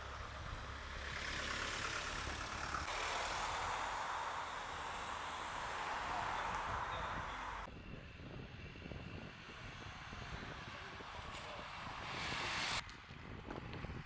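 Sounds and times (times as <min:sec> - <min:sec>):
steady rushing noise: 0:02.8 - 0:12.8.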